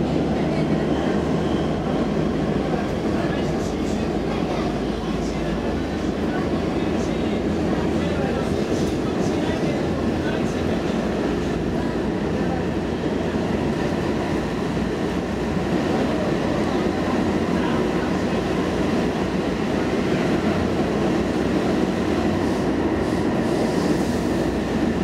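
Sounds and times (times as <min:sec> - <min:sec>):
rumble of wheels on rail: 0:00.0 - 0:25.0.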